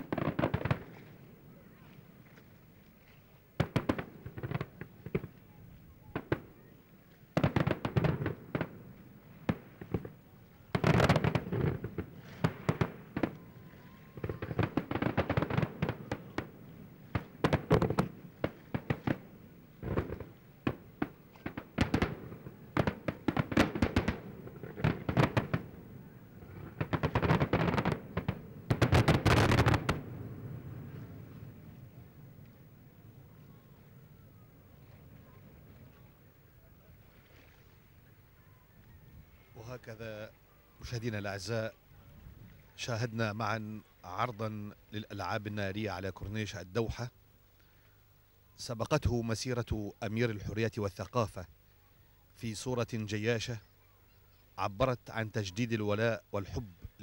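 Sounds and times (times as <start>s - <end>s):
fireworks bangs and crackling: 0.0s - 2.5s, 3.6s - 36.5s.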